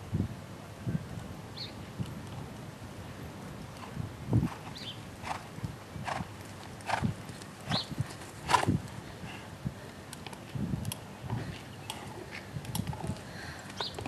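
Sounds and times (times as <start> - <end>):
horse hoofbeats on dirt: 3.8 - 8.9.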